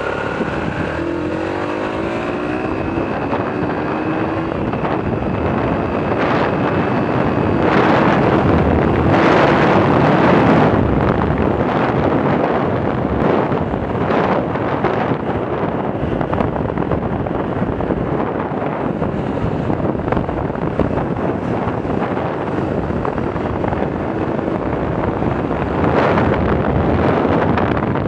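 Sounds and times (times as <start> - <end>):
motorcycle engine accelerating: 0.0 - 28.0
wind buffeting microphone: 0.0 - 28.0.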